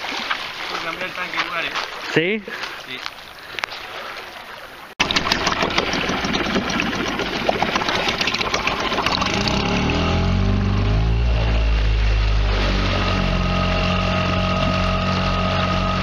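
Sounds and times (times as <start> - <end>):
outboard motor running: 5.0 - 16.0.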